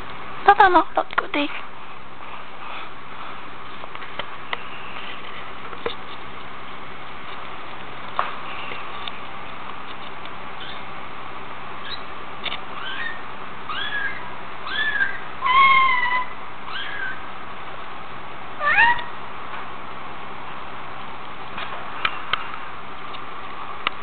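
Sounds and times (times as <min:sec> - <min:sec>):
kitten mewing: 0:18.6 - 0:19.1.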